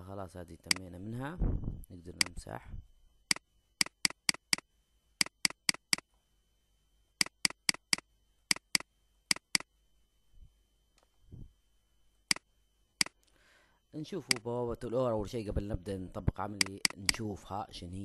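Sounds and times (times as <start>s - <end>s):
computer mouse clicking: 3.3s - 6.1s, 7.2s - 9.7s, 16.6s - 17.2s.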